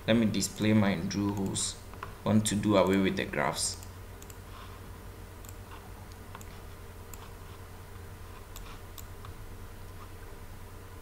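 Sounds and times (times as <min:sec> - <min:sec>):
computer mouse clicks: 0:01.2 - 0:02.1, 0:03.8 - 0:04.4, 0:05.4 - 0:07.4, 0:08.4 - 0:10.1.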